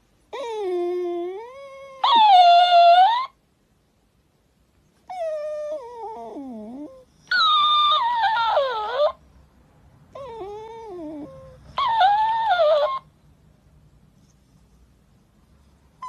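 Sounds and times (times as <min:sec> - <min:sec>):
dog whining: 0:00.3 - 0:03.4, 0:05.0 - 0:09.2, 0:10.1 - 0:13.1
toy dog echoing whines: 0:01.9 - 0:03.4, 0:07.3 - 0:09.2, 0:11.8 - 0:13.0.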